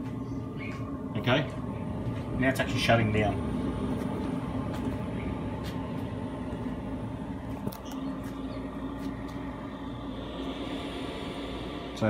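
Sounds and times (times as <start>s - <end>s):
air heater fan humming: 0.0s - 12.0s.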